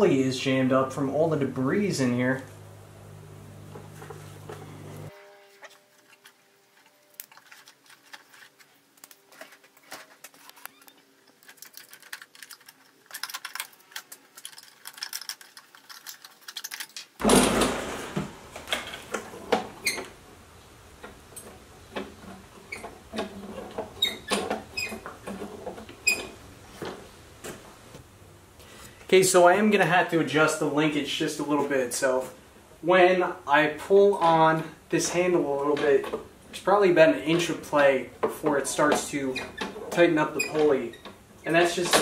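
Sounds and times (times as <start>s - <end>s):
parts and tools clattering: 6.1s - 20.1s.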